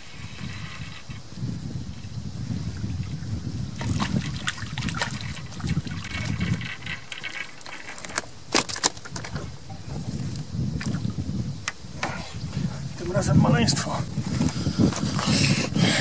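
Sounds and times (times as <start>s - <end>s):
water lapping: 3.8s - 8.6s.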